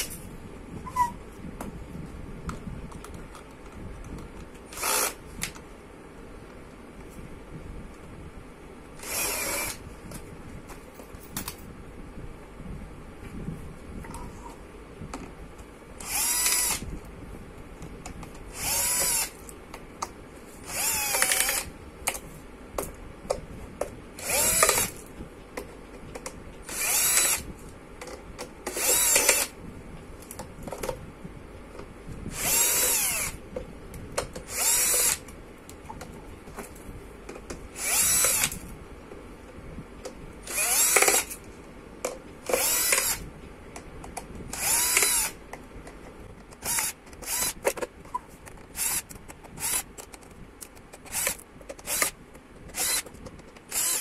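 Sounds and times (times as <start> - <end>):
cordless drill whining: 4.7 - 5.2, 9.0 - 9.8, 16.0 - 16.9, 18.5 - 19.4, 20.6 - 21.7, 24.2 - 25.0, 26.7 - 27.5, 28.7 - 29.5, 32.3 - 33.4, 34.5 - 35.2, 37.8 - 38.6, 40.4 - 41.4, 42.5 - 43.2, 44.5 - 45.4, 46.6 - 47.7, 48.7 - 49.9, 51.1 - 53.1, 53.7 - 54.0.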